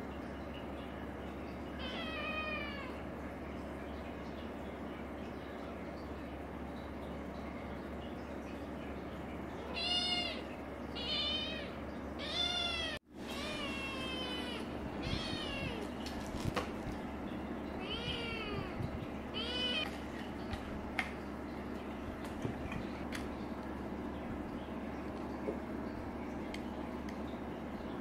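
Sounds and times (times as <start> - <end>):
kitten meowing: 11.0 - 15.9.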